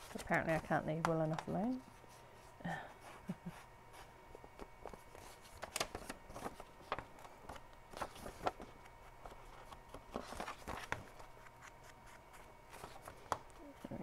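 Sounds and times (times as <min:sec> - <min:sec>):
paper rustling: 0:03.0 - 0:14.0.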